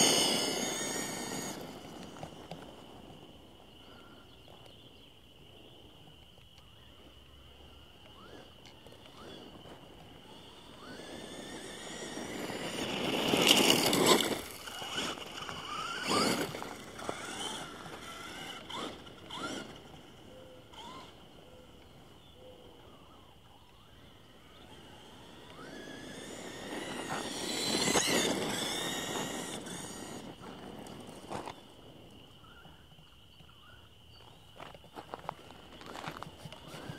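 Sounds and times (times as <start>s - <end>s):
tyres crunching on gravel: 0.0s - 3.2s, 9.0s - 20.2s, 24.7s - 31.7s, 34.2s - 36.9s
rc truck motor whining: 0.0s - 3.3s, 8.0s - 31.8s, 35.8s - 36.9s.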